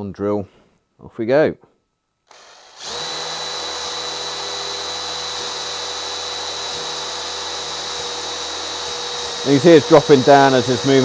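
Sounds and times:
drill boring into wood: 2.3 - 11.0.

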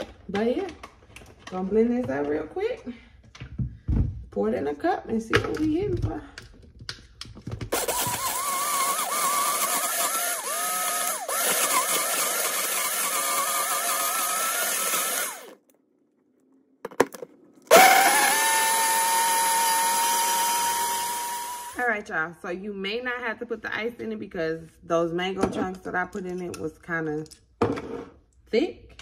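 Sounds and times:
blender motor running: 7.7 - 15.6, 17.7 - 21.9.

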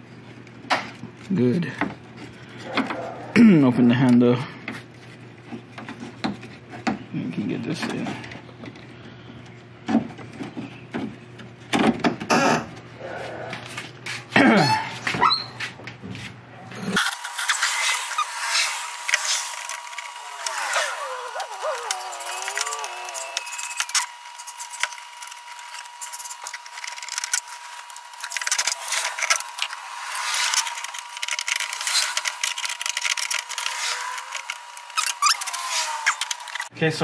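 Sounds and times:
steady high tone: 20.1 - 24.2.

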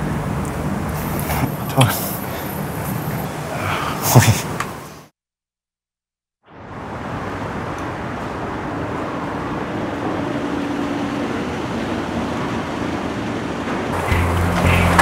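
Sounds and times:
car engine and road rumble: 0.0 - 3.7, 11.2 - 15.0
low engine hum: 13.9 - 15.0.

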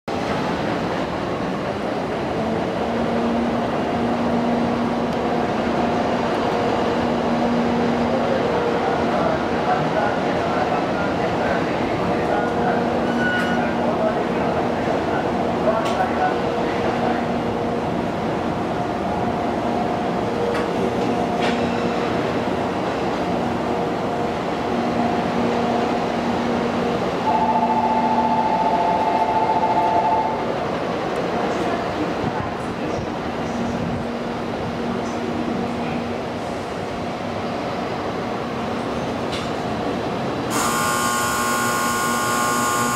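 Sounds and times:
train wheels rumbling on rails: 0.1 - 27.3, 30.4 - 40.5
steady higher tone: 27.2 - 30.5, 40.5 - 42.9.

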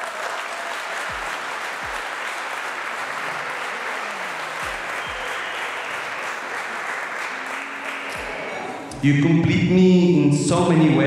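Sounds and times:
people applauding: 0.0 - 9.1.

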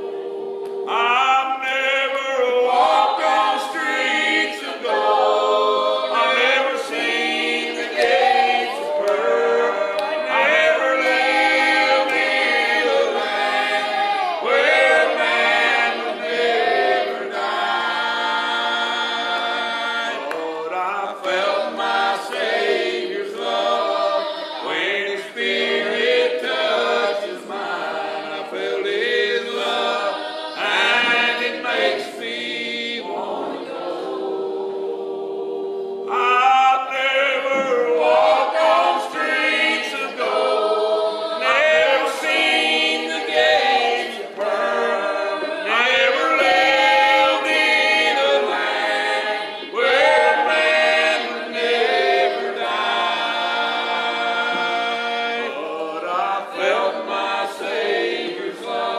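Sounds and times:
choir singing in harmony: 0.0 - 58.9.

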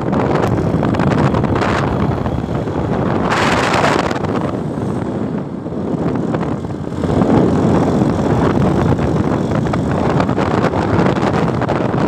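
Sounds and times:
motorcycle engine running: 0.0 - 12.0
wind rushing over microphone: 0.0 - 12.0.

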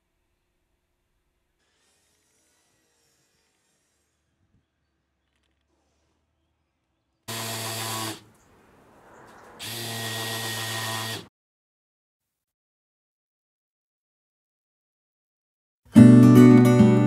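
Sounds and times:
power drill drilling: 1.6 - 4.6, 7.3 - 8.3, 9.6 - 11.3.

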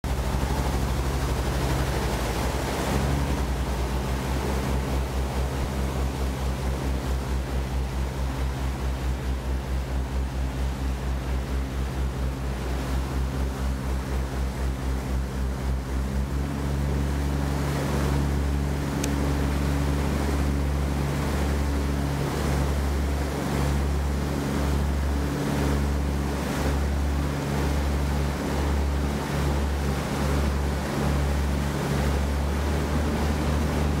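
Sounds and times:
boat engine droning: 0.0 - 34.0
wake water rushing: 0.0 - 34.0.

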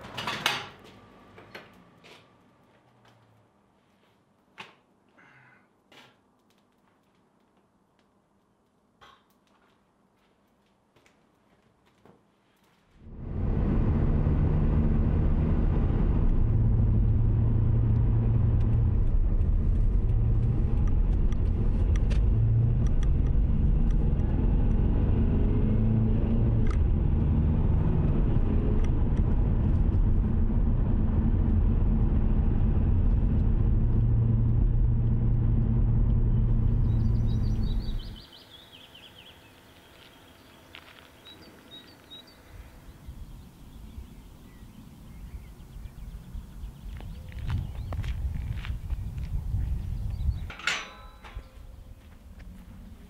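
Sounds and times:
car engine and tyre noise: 13.0 - 53.0
faint bird chirps: 36.7 - 48.0.

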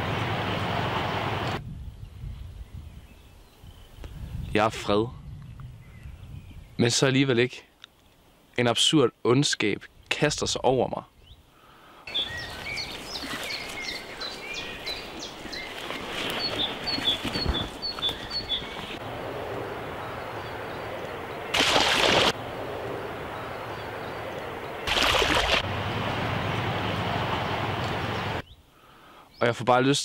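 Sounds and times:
steady outdoor hiss: 0.0 - 30.0
birds chirping: 11.0 - 29.7.

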